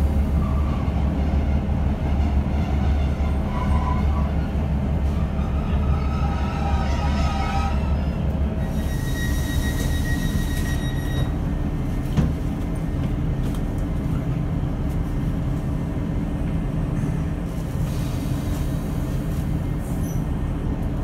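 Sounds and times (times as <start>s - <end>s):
train diesel engine drone: 0.0s - 21.0s.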